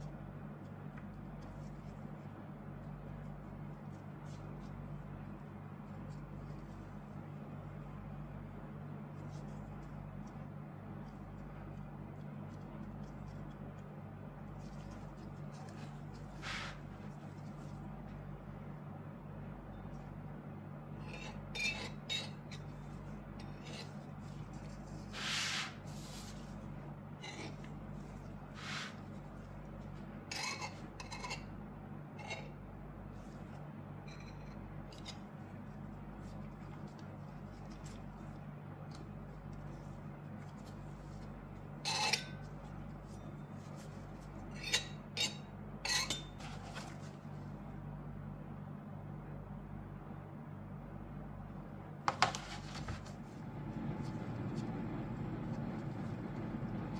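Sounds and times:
steady low hum: 0.0 - 56.9
knife scraping metal ring: 21.0 - 22.7, 27.2 - 27.7, 30.3 - 31.5, 32.2 - 32.6, 41.8 - 42.5, 44.5 - 46.4.

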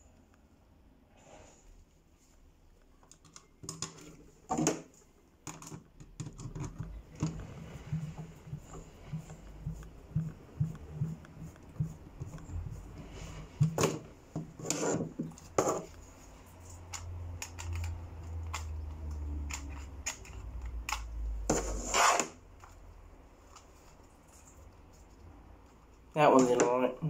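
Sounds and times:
plastic parts clicking and knocking: 3.0 - 12.4, 16.7 - 21.6.

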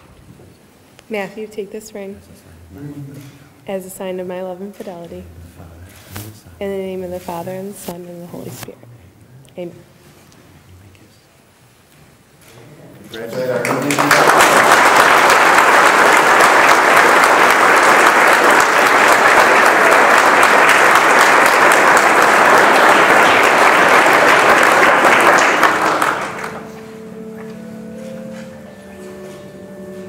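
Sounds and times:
congregation applauding: 13.1 - 29.7
quiet instrumental music: 26.2 - 30.0.

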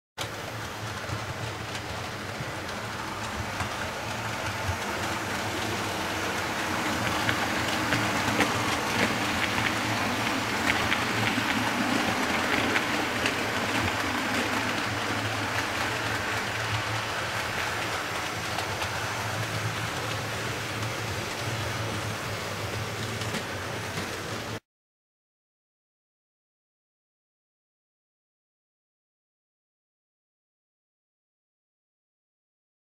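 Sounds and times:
model train rolling past: 0.2 - 24.6
wheels clicking over rail joints: 0.2 - 24.6.

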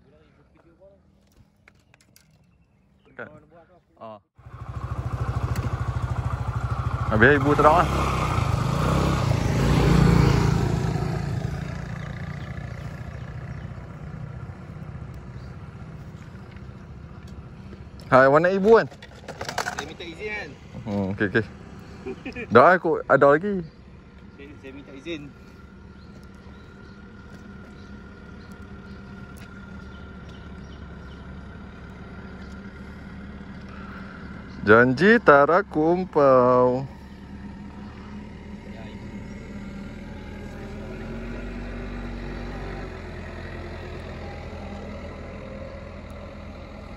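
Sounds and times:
small engine humming: 4.4 - 22.6, 23.6 - 46.9.

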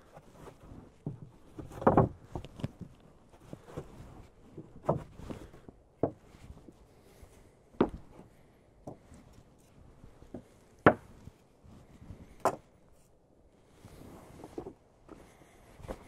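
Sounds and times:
wooden boards clacking together: 1.0 - 2.5, 4.6 - 5.2.

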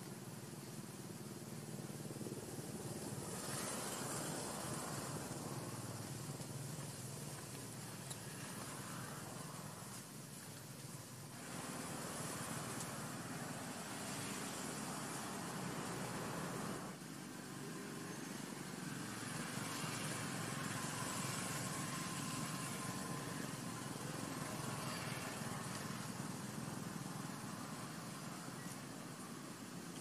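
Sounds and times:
outdoor background hum with hiss: 0.0 - 30.0.

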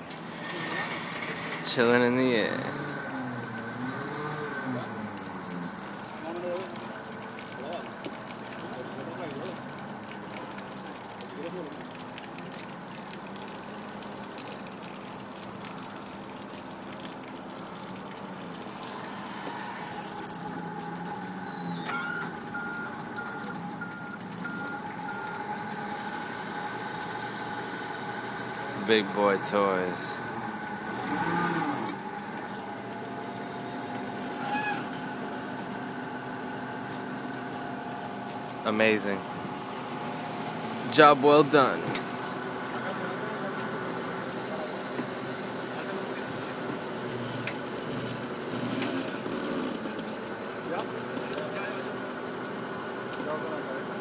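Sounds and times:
forklift humming: 18.3 - 44.9.

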